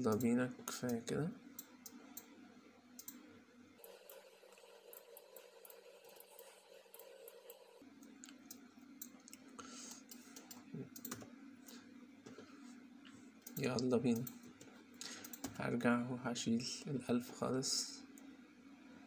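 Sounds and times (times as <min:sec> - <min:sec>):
computer mouse clicks: 0:00.0 - 0:01.0, 0:03.0 - 0:03.2, 0:03.8 - 0:11.3, 0:13.4 - 0:15.6
low background hum: 0:00.0 - 0:19.0.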